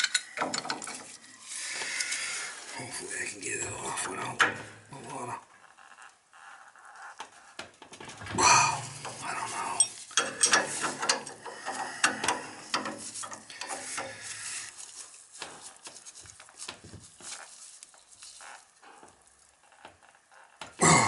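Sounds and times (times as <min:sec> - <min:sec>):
wrenches clicking on steel fittings: 0:00.0 - 0:01.1, 0:08.9 - 0:14.4.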